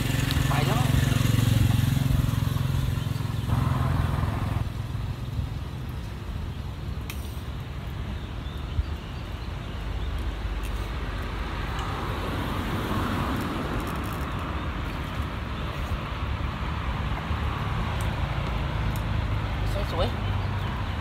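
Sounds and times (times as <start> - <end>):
vehicle passing: 0.0 - 5.8, 10.8 - 21.0
road traffic rumble: 0.0 - 21.0.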